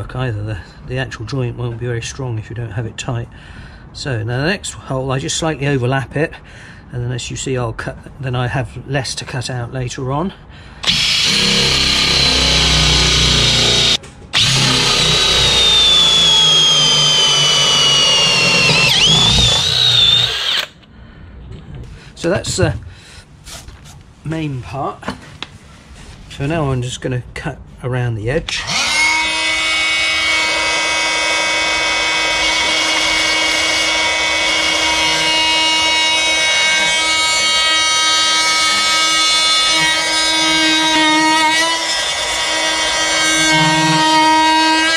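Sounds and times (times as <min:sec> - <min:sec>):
cordless drill boring into wood: 0:10.8 - 0:20.8, 0:28.5 - 0:44.9
oscillating multi-tool cutting wood: 0:10.8 - 0:20.8, 0:28.5 - 0:44.9.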